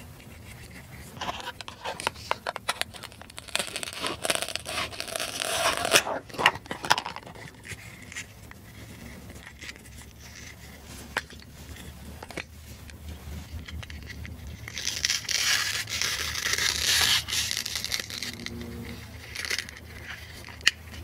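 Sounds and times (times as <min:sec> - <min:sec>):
velcro ripping apart: 0:01.4 - 0:07.6, 0:14.6 - 0:20.7.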